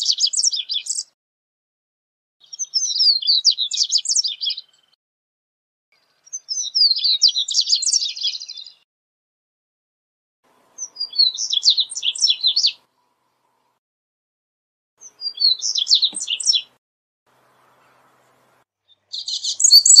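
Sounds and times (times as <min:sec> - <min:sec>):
bird twittering song: 0:00.0 - 0:01.2, 0:02.4 - 0:05.0, 0:05.9 - 0:08.8, 0:10.6 - 0:13.8, 0:15.0 - 0:20.0.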